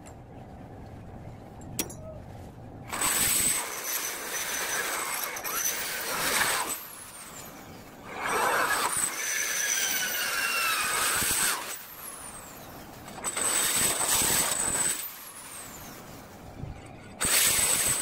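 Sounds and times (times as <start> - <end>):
electric drill boring into metal: 2.9 - 7.5, 8.1 - 12.5, 13.1 - 16.0, 17.2 - 18.0.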